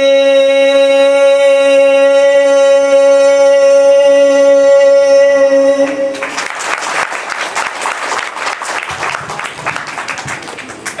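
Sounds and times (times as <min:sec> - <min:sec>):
audience applauding: 0:06.1 - 0:11.0.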